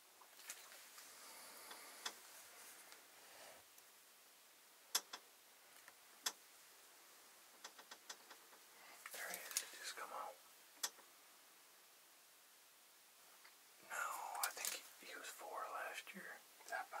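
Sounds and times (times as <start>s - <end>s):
faint rustling: 0.2s - 3.9s, 5.6s - 11.2s, 13.3s - 17.0s
small ticks: 4.9s - 5.2s, 7.6s - 8.4s
sharp clicks: 4.9s - 5.3s.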